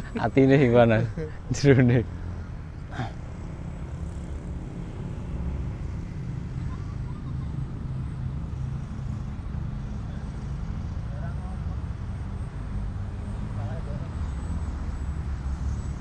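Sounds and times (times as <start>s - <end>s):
model airplane motor droning: 2.0s - 12.7s.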